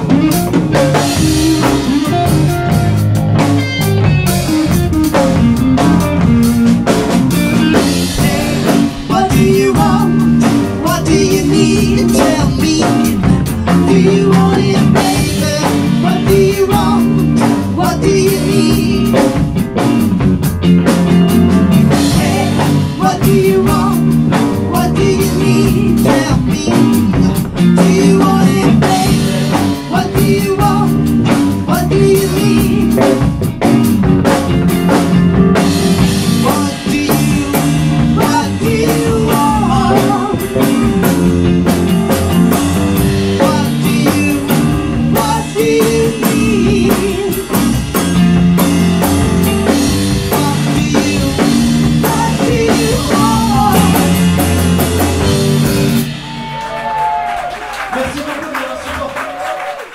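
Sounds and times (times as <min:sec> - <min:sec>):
rock band playing: 0:00.0 - 0:59.9
person singing lead: 0:07.7 - 0:19.4, 0:22.0 - 0:33.3, 0:36.3 - 0:41.4, 0:43.3 - 0:47.6, 0:50.2 - 0:54.4.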